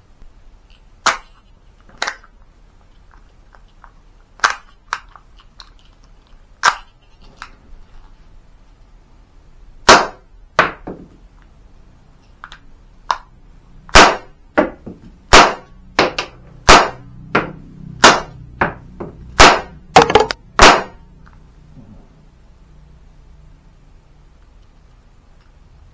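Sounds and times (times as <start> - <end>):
cap gun shots: 9.9 - 10.2, 13.9 - 14.3, 15.3 - 17.0, 18.0 - 18.3, 19.4 - 21.0.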